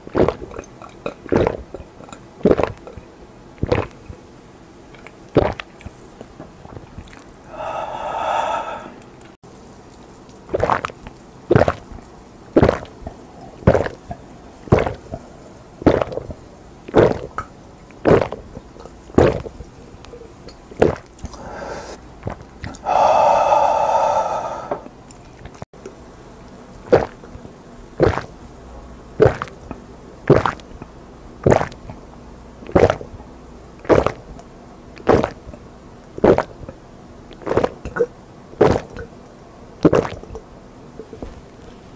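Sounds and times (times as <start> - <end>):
man gulping a drink: 0.0 - 4.0, 6.7 - 9.4, 12.6 - 15.2, 15.8 - 16.3, 16.9 - 17.4, 18.0 - 25.6, 29.2 - 30.8, 32.6 - 33.1, 33.8 - 34.3, 35.0 - 35.6, 36.2 - 39.1, 39.8 - 41.5
breathy exhale: 7.4 - 9.2, 21.3 - 22.0, 22.7 - 25.0.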